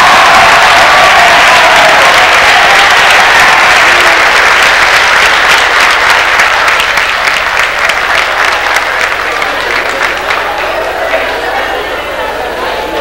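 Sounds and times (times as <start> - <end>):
crowd applauding: 0.0 - 13.0.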